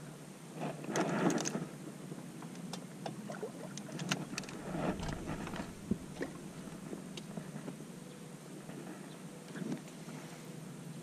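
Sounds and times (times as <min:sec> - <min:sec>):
low steady hiss: 0:00.0 - 0:11.0
sleeves rustling: 0:04.2 - 0:07.0.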